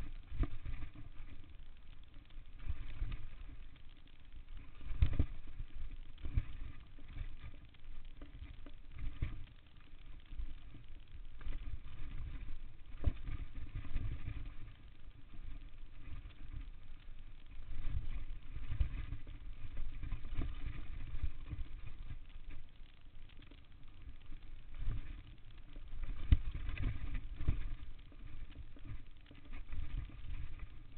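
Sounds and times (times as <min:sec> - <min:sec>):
wind and tyres rumbling on dirt: 0:00.0 - 0:30.9.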